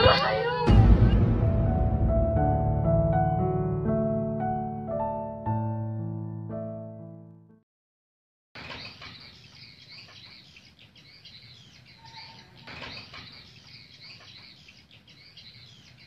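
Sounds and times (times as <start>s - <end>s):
small birds chirping: 8.6s - 16.0s.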